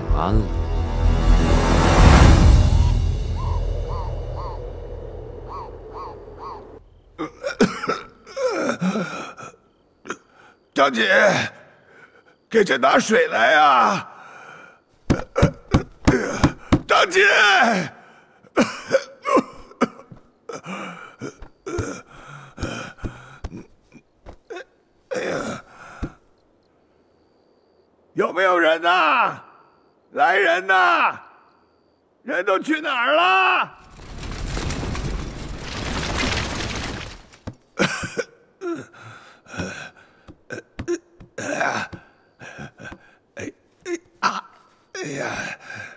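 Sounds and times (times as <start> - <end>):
rush of noise: 0.8 - 6.4
man coughing: 7.2 - 9.0, 37.8 - 39.0
elderly man gasping and grunting: 8.2 - 10.6, 14.1 - 16.9, 17.6 - 26.2, 37.8 - 45.9.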